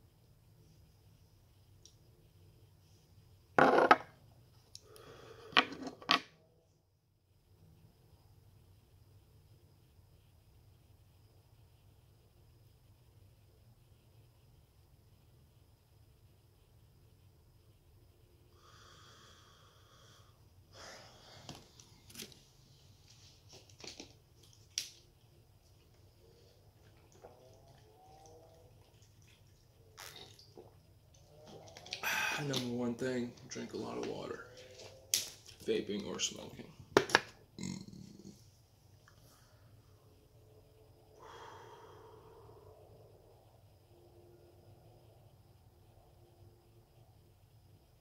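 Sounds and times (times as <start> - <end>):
breathy exhale: 18.6 - 21.5, 32.0 - 32.5, 41.2 - 42.9.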